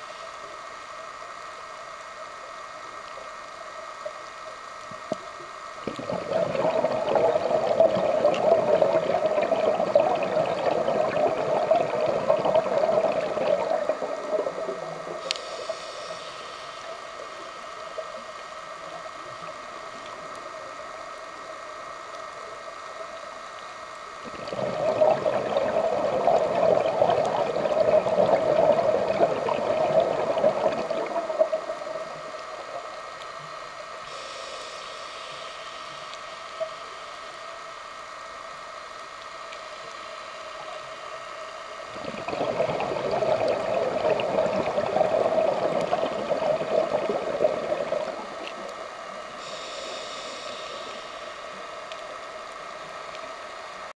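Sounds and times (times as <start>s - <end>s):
faint regulator hisses: 0.0s - 53.9s
steady background hum: 0.0s - 53.9s
exhaled bubbles gurgling underwater: 4.9s - 16.2s, 24.2s - 34.1s, 41.7s - 53.3s.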